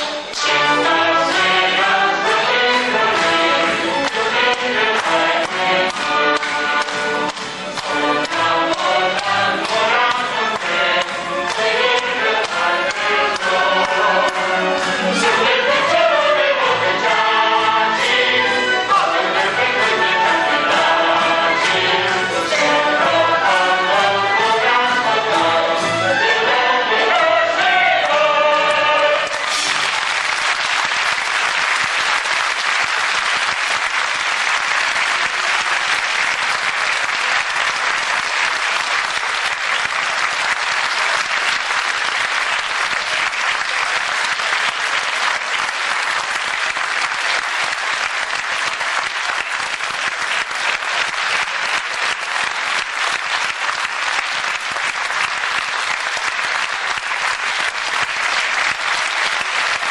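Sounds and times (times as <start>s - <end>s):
audience applauding: 0.0s - 24.3s, 27.7s - 59.9s
chorus and orchestra singing: 0.0s - 30.9s.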